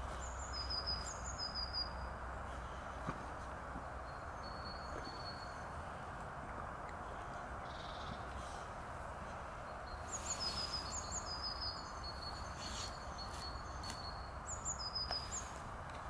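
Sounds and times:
outdoor background hiss: 0.0 - 16.0
small bird chirping: 9.7 - 15.6.

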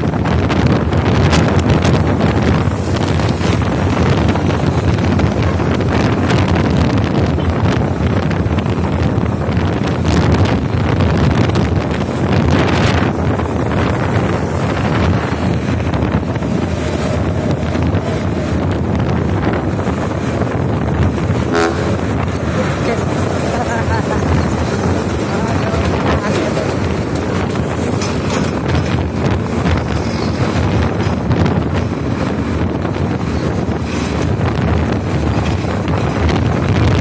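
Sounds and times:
road noise: 0.0 - 37.0
wind rushing over microphone: 0.0 - 37.0.

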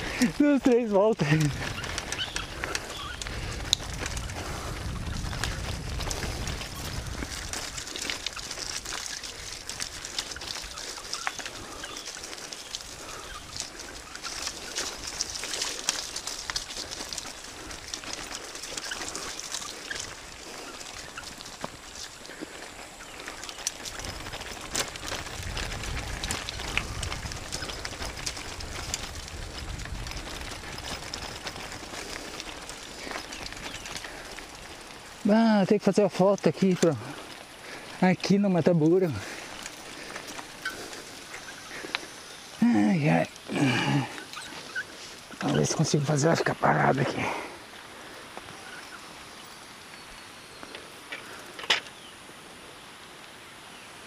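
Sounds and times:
bike clicks: 0.0 - 46.5, 50.6 - 52.1
bicycle tyres crunching gravel: 0.0 - 54.0
outdoor background: 0.0 - 54.0
wind rumble on microphone: 1.2 - 18.4, 23.7 - 35.2.

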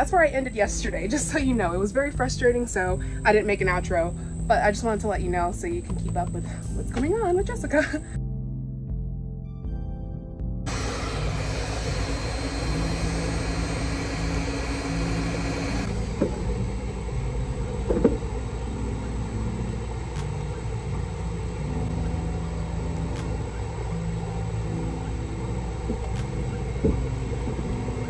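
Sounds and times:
heat gun fan humming: 10.7 - 22.2.

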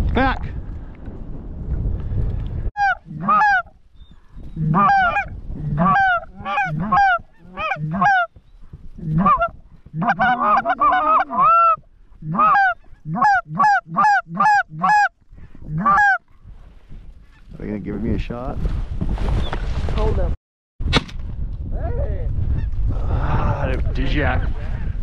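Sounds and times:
goose honks and clucks: 2.8 - 3.7, 4.6 - 8.3, 9.0 - 15.1, 15.7 - 16.2.

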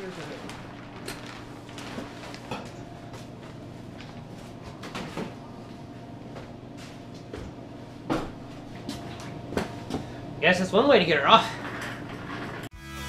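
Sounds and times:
steady background hum: 0.0 - 12.7.

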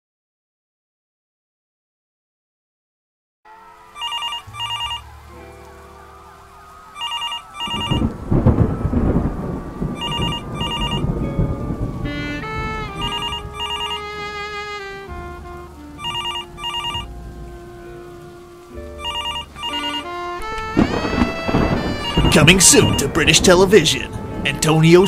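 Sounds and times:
dark sustained music: 3.5 - 25.0
rain-like hiss: 3.5 - 25.0
telephone double ring: 4.0 - 5.0, 10.0 - 11.0
thunderclap and rumble: 6.0 - 17.7, 19.0 - 25.0.

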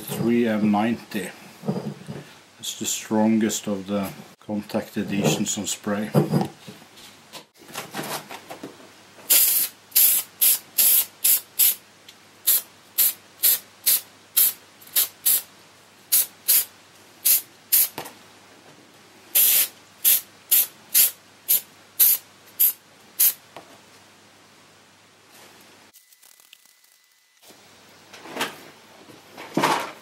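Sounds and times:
aerosol spray hissing bursts: 9.3 - 11.8, 12.4 - 15.5, 16.1 - 17.9, 19.4 - 23.4.

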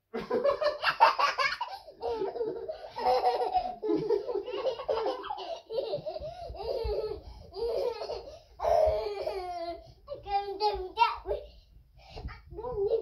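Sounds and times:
toddler laughing: 0.7 - 10.8.

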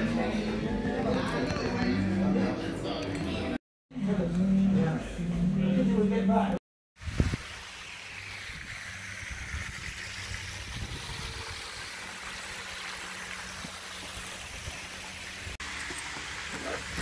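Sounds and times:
fountain spray splashing: 7.0 - 17.0.

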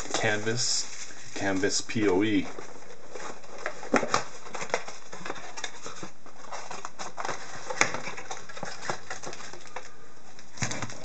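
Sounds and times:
steady hiss: 0.0 - 2.6
cardboard and wrapping crinkling: 0.0 - 11.0.

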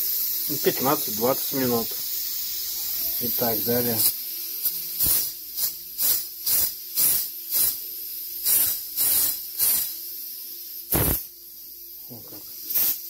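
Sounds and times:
pressure cooker valve hissing puffs: 0.0 - 11.8, 12.4 - 13.0.

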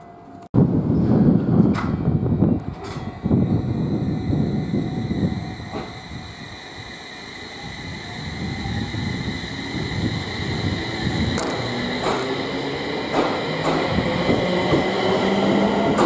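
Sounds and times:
electric train rumbling: 0.3 - 16.0
electric motor whine: 3.2 - 15.9.

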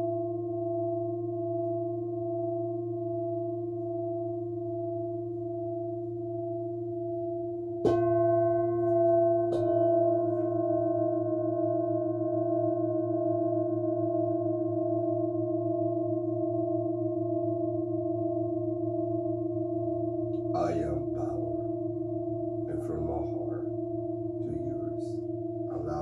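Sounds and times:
singing bowls ringing: 0.0 - 20.3
singing bowl struck: 7.4 - 13.6
low hum: 19.7 - 26.0.

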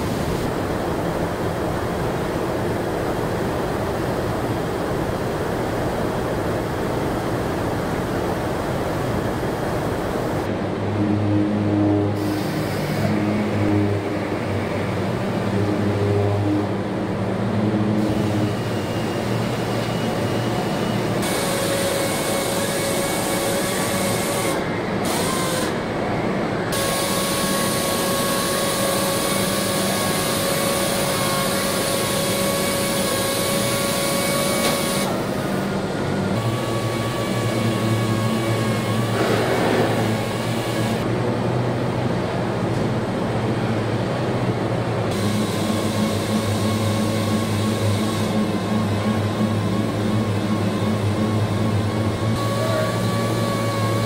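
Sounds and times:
factory machinery noise: 0.0 - 54.0
electric motor hums and whines: 7.3 - 41.1, 45.0 - 54.0.

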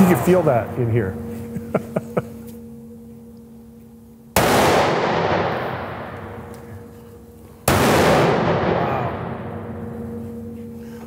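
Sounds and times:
rifle shot: 4.4 - 6.5, 7.6 - 9.8.

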